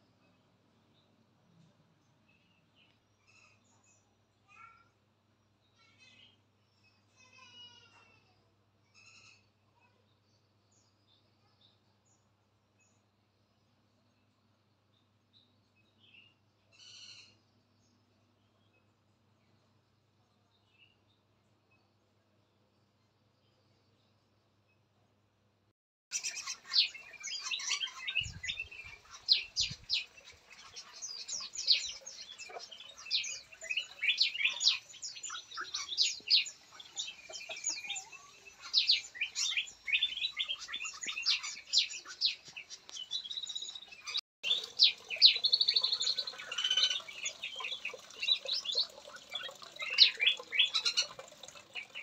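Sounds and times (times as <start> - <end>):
songbirds chirping: 0.0 - 8.0, 26.1 - 52.0.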